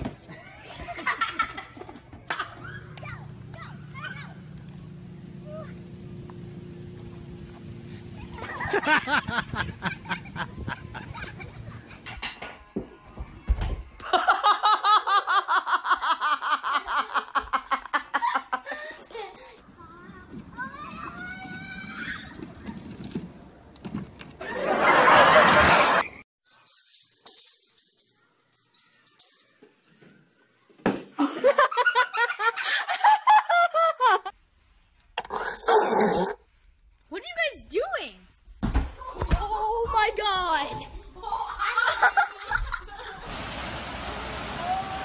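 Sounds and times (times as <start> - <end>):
high-pitched laughter: 31.2 - 34.3, 41.2 - 43.2
thump: 38.6 - 39.4.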